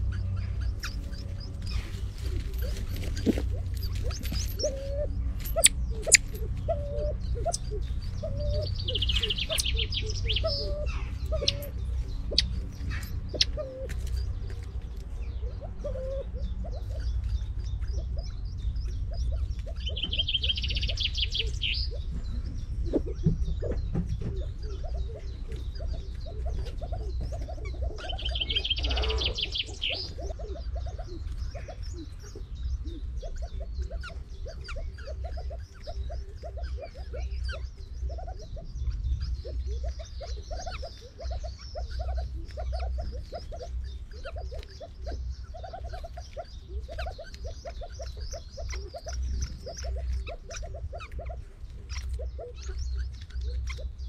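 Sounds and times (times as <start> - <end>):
soft low bird calls: 0.0 - 54.0
songbird trills: 0.0 - 54.0
steady low rumble: 0.0 - 54.0.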